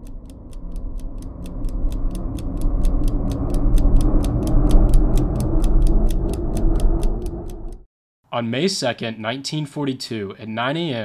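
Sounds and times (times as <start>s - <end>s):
low rumbling drone: 0.0s - 7.9s
steady mechanical ticking: 0.0s - 7.9s.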